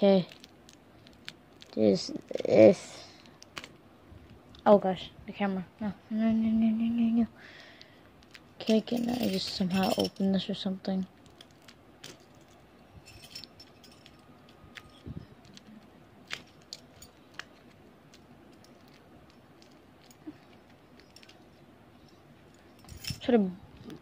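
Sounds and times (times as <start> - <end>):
plastic packaging crinkling: 0.1 - 2.5, 11.2 - 12.2.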